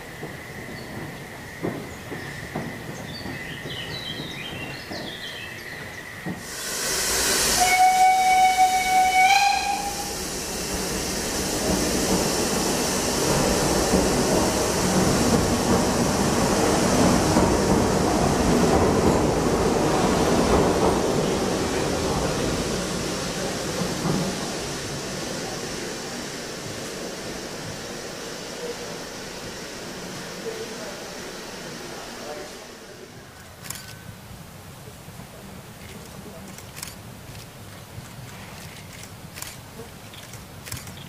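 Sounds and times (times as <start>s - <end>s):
steam hissing: 0.0s - 33.7s
train rolling: 0.0s - 41.0s
steam whistle blast: 6.5s - 10.3s.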